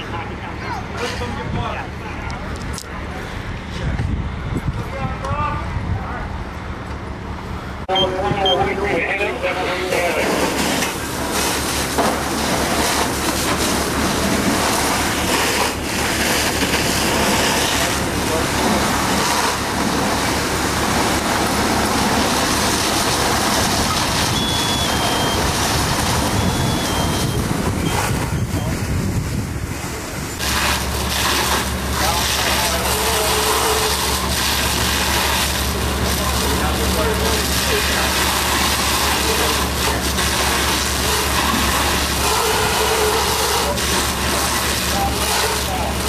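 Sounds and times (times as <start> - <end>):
fire engine running: 0.0 - 46.0
high two-note electronic beep: 7.9 - 8.7
hose stream spraying: 9.7 - 28.9, 29.8 - 46.0
water hiss: 30.4 - 46.0.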